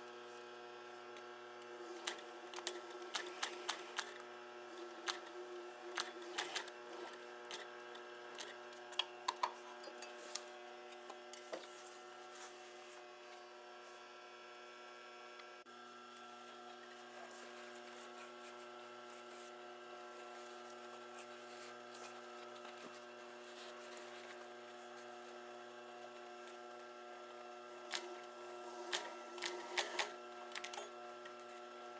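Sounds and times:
sewing machine motor hum: 0.0s - 13.8s, 15.7s - 31.9s
sewing machine clicks and knocks: 1.9s - 9.6s, 27.9s - 31.0s.

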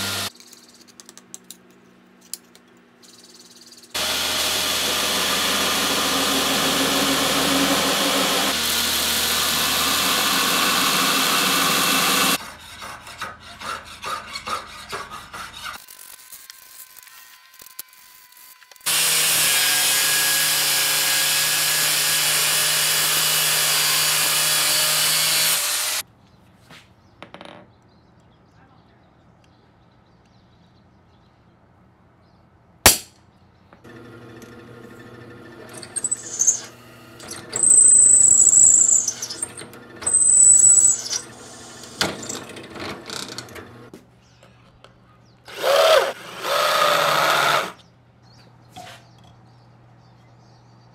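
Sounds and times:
power tool running: 0.0s - 0.3s, 4.0s - 12.4s, 18.8s - 26.0s, 33.8s - 43.9s, 45.5s - 47.8s
cordless drill boring into steel: 4.0s - 12.4s, 33.9s - 42.5s, 45.5s - 47.8s
drill bit squealing: 10.0s - 12.4s, 35.5s - 43.6s
hammer striking punch on steel: 32.9s - 33.1s.

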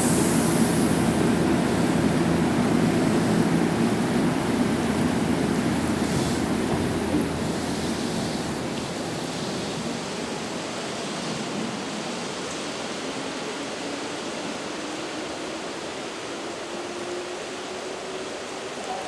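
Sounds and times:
electric train motor whine: 0.0s - 9.8s
heavy rain hissing: 0.0s - 18.9s.

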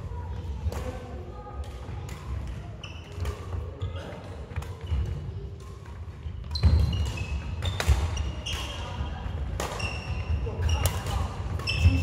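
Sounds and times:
shoes squeaking on floor: 6.4s - 8.9s, 9.7s - 12.0s
racket striking shuttlecock: 9.4s - 12.0s.

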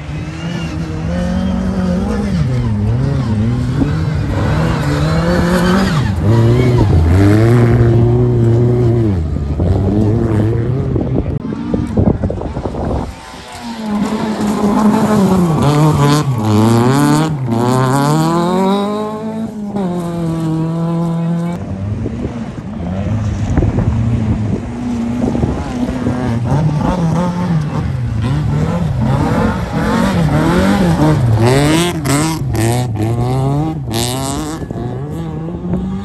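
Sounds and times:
rally car engine revving: 0.0s - 36.0s.

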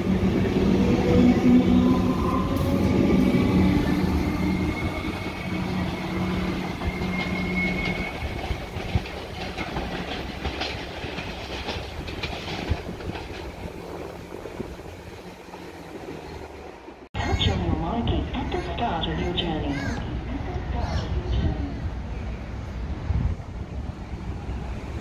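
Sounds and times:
train wheels clicking on track: 0.0s - 16.2s
electric train whine and hum: 0.0s - 17.1s.

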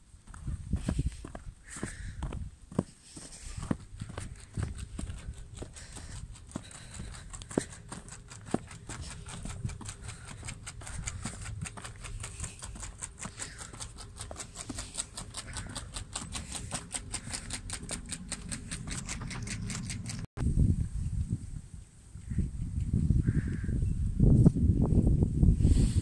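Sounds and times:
footsteps crunching in snow: 0.3s - 16.8s.

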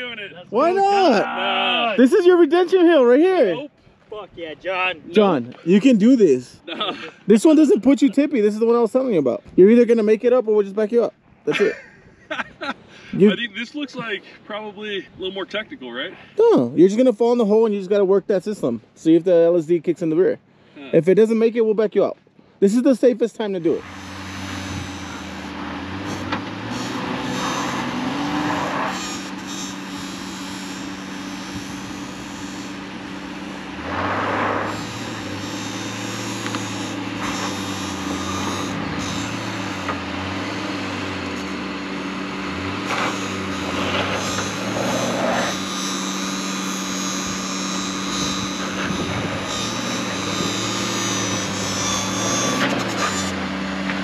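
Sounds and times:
vehicle engine revving: 23.6s - 54.0s.

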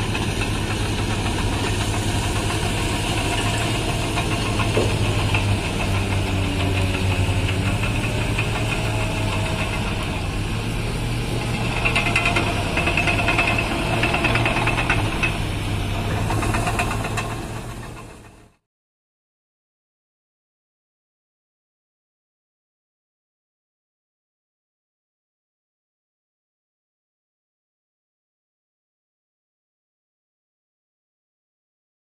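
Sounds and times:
diesel engine droning: 0.0s - 18.6s
high whine and clatter: 0.0s - 18.7s.

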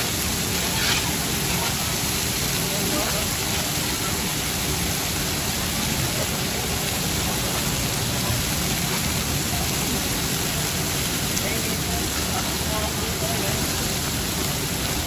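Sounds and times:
chicken sizzling on a griddle: 0.0s - 10.7s.

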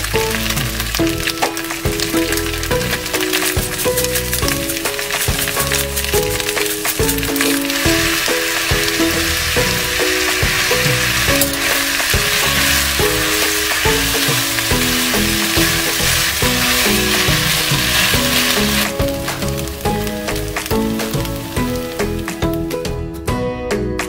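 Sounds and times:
spatula stirring in skillet: 0.0s - 22.5s
rice sizzling in a skillet: 0.0s - 22.9s
background music: 0.0s - 24.0s.

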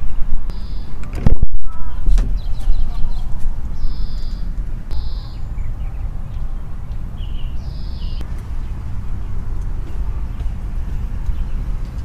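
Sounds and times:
steady low rumble: 0.0s - 12.0s
short high bird calls: 1.6s - 6.2s, 7.2s - 8.2s.

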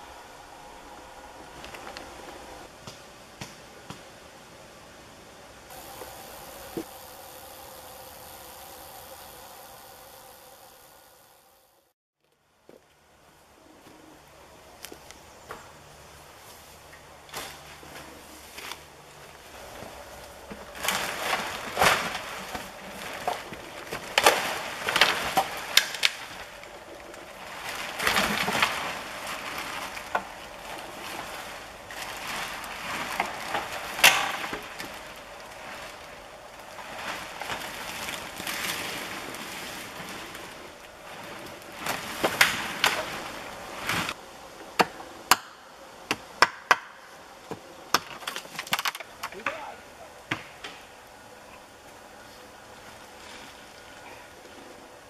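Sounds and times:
wooden poles scraping and cracking: 0.0s - 2.8s, 16.5s - 45.2s, 47.6s - 51.0s
branches rustling: 0.0s - 55.0s
wood snapping: 20.6s - 31.3s, 32.1s - 36.0s, 36.6s - 44.2s, 47.9s - 49.6s.

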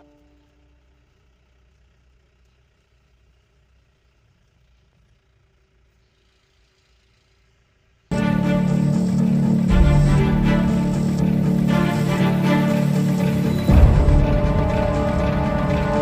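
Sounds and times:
low engine rumble in cabin: 0.0s - 16.0s
road noise: 8.1s - 16.0s.

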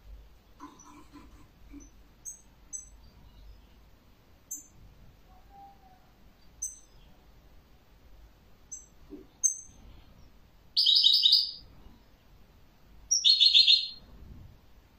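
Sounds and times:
bird chirping: 0.5s - 7.4s, 8.7s - 12.2s, 13.1s - 14.1s.

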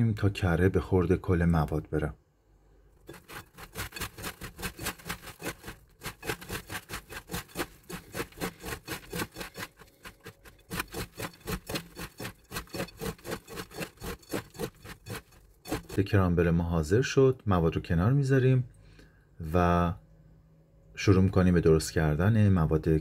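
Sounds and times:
crunchy rubbing of crumbs: 3.1s - 16.1s.

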